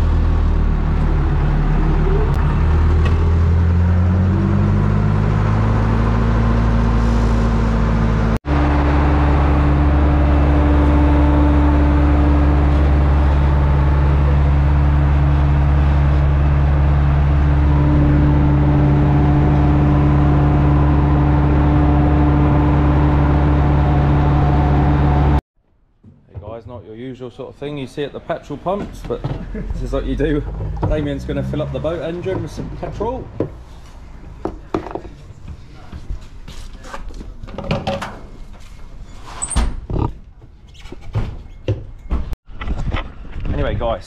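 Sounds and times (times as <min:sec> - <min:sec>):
tractor engine: 0:00.0 - 0:25.4.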